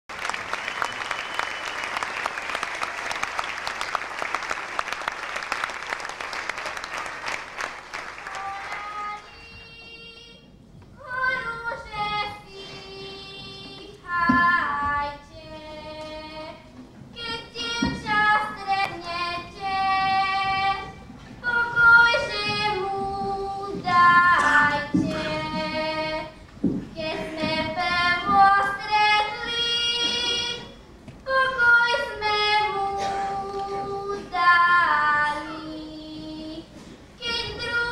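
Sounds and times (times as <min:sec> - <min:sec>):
girl singing unaccompanied: 0:08.2 - 0:37.9.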